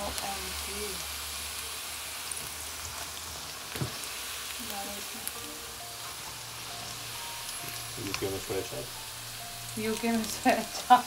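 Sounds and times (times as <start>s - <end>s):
hot oil sizzling: 0.0s - 11.0s.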